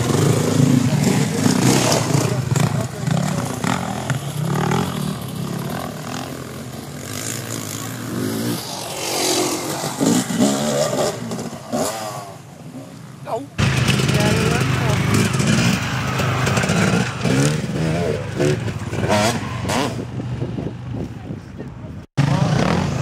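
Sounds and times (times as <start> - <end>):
dirt bike engines revving: 0.0 - 23.0
people talking: 13.2 - 15.3, 21.0 - 22.8.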